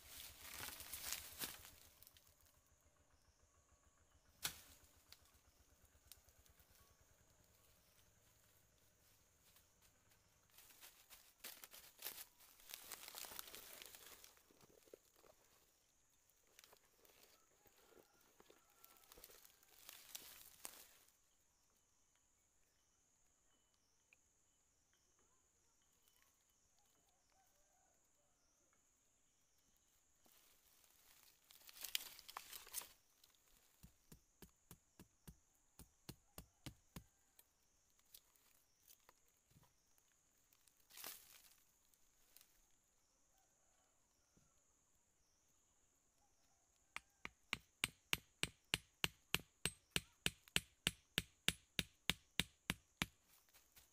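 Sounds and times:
rustling of dry leaf litter: 0.0 - 2.3, 7.8 - 15.8, 16.5 - 21.2, 29.9 - 34.1, 40.3 - 42.7
machete tapping wooden stake: 47.0 - 53.2.

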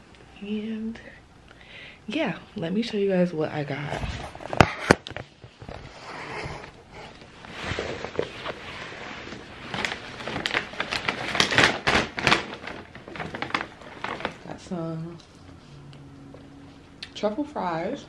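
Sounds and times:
paper bag rustling and crinkling: 3.9 - 14.8.

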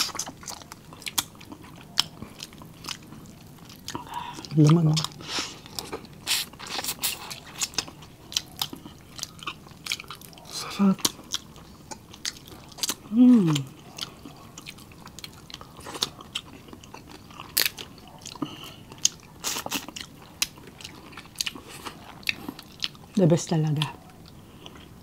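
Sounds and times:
wet chewing and lip-smacking: 0.0 - 25.0
person humming: 13.1 - 13.7.

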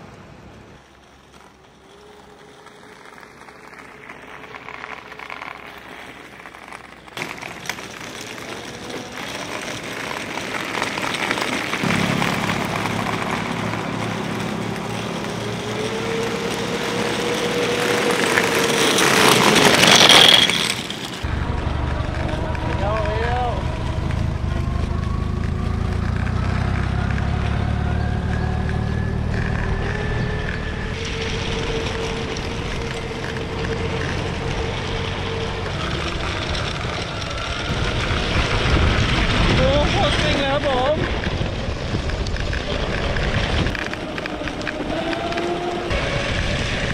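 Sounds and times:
vehicle passing by: 0.0 - 46.9
wheels rumbling on rough road: 0.0 - 46.9
electric motor whine: 11.7 - 46.9
low steady rumble: 21.2 - 43.9.

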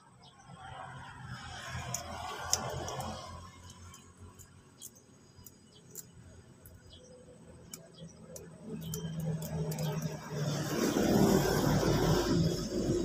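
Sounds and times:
plant rustling and scratching: 1.3 - 5.0.

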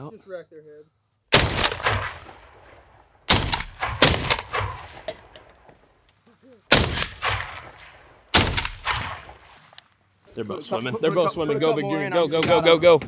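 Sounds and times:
shotgun blasts with echo: 1.3 - 5.4, 6.7 - 9.8.

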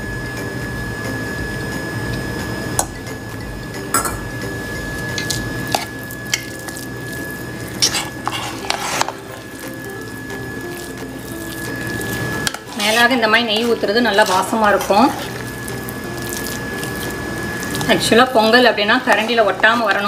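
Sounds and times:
spoon stirring thick food: 5.2 - 20.0
spoon clicking and scraping pot: 7.8 - 9.6, 11.0 - 18.5.

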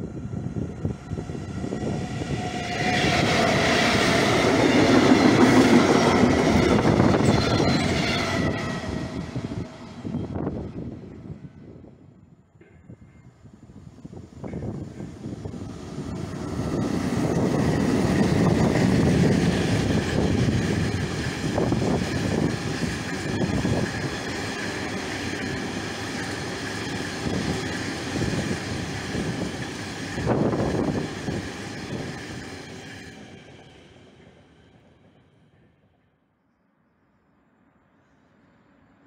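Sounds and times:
freight train rolling rumble: 0.0 - 11.9, 13.6 - 35.8
high thin wheel tone: 2.2 - 10.4.

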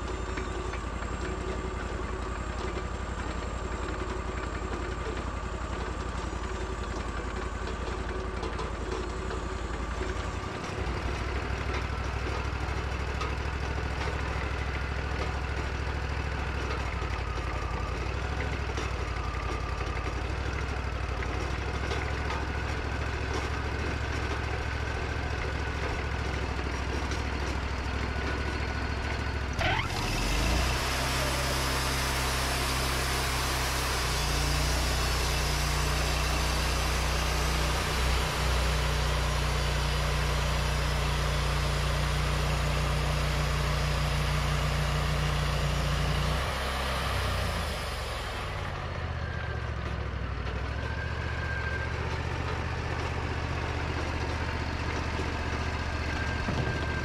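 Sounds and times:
sawmill engine idling: 0.0 - 57.0
band saw cutting log: 29.6 - 39.4.

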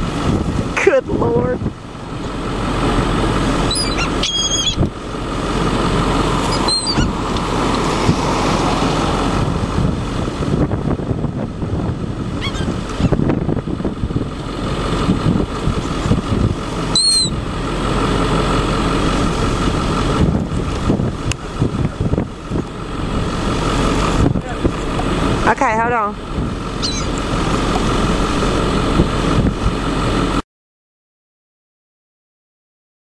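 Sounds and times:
motor noise: 0.0 - 30.4
wind rumbling: 0.0 - 30.4
gulls calling: 1.2 - 7.9, 12.2 - 13.3, 15.6 - 20.2, 21.4 - 29.1.

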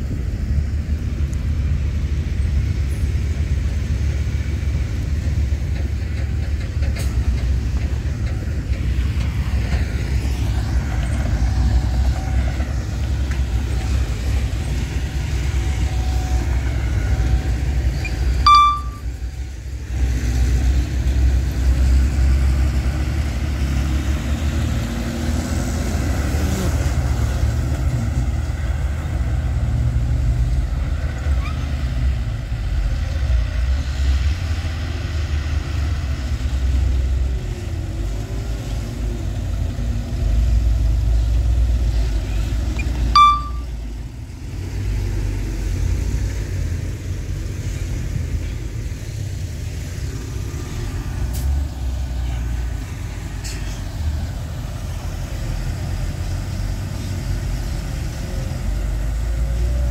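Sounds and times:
diesel engines rumbling: 0.0 - 59.9
brief high blip: 18.5 - 19.1, 42.8 - 43.7.

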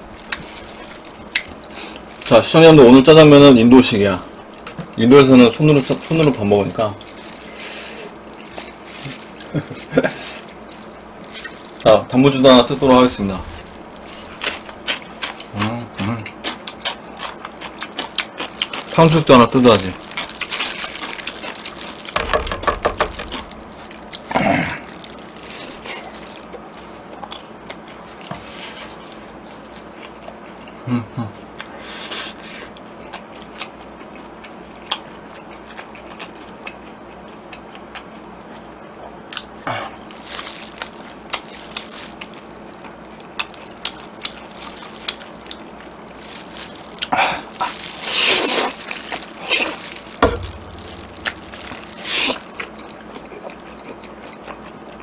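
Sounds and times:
wet chewing: 0.1 - 2.4, 4.2 - 28.1, 32.7 - 55.0
noodles being slurped: 43.8 - 50.3.

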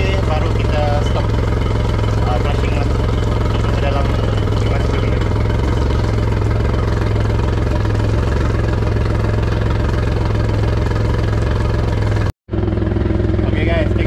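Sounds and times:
outboard motor idling: 0.0 - 14.0.

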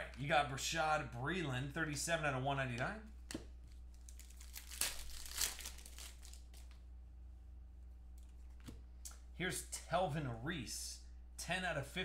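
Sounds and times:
plastic wrapper tearing and crinkling: 3.7 - 6.8.

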